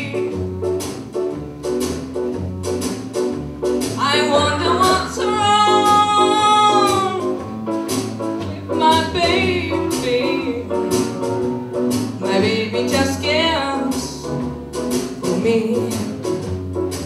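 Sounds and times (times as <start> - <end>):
woman singing jazz: 0.0 - 0.8, 4.0 - 11.3, 11.9 - 17.0
drum strokes: 0.0 - 17.0
piano: 0.0 - 17.0
plucked double bass: 0.0 - 17.0.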